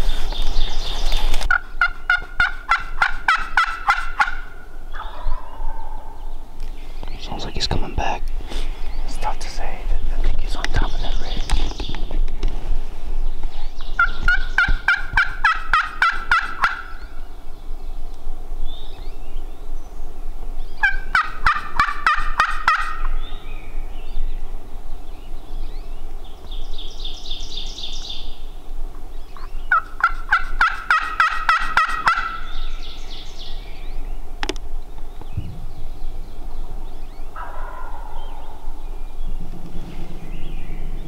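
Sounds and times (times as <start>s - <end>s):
songbird trill: 0.0s - 12.3s, 13.2s - 41.0s
turkey gobbling: 1.5s - 6.2s, 14.0s - 17.0s, 20.8s - 23.1s, 29.4s - 32.6s, 37.4s - 38.8s.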